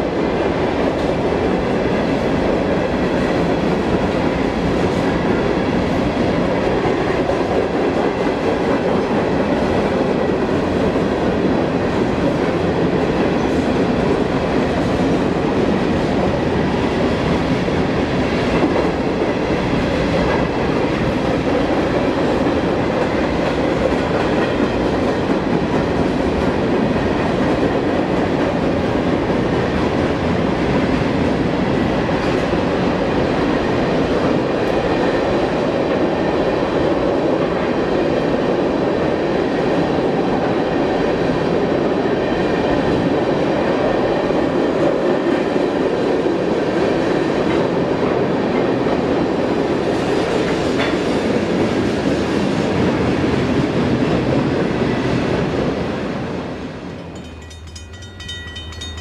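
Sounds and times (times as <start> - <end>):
freight train rolling past: 0.0 - 59.0
steel wheels on rails: 56.8 - 59.0.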